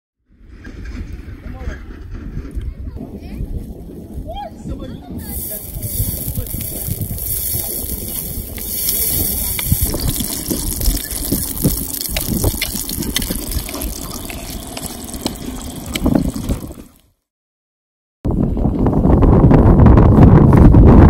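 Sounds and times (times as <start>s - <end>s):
butter sizzling on hot stone: 5.2s - 17.0s
wooden spatula scraping on stone: 5.3s - 16.5s.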